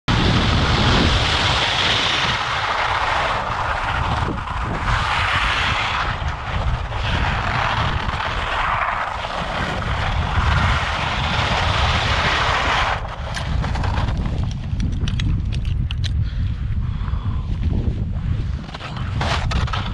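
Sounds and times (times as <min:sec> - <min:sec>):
skis scraping over snow: 0:00.1 - 0:14.9, 0:18.2 - 0:19.9
wind buffeting microphone: 0:00.1 - 0:19.9
sharp clicks: 0:13.3 - 0:16.2.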